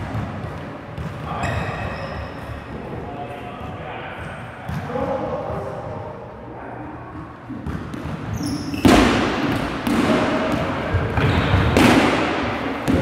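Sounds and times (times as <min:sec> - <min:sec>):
balls bouncing on gym floor: 0:00.0 - 0:02.7, 0:03.6 - 0:05.3, 0:07.1 - 0:13.0
players' voices: 0:01.0 - 0:07.8
loud ball impact: 0:07.5 - 0:13.0.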